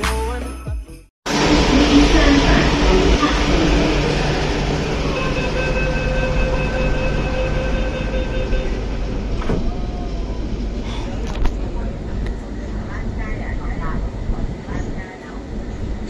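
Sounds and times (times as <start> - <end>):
train humming: 1.3 - 16.0
door-closing warning tone: 5.0 - 9.8.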